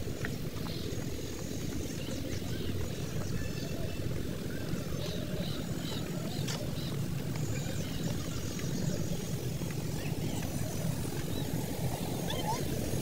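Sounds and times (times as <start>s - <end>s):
small birds chirping: 0.2s - 13.0s.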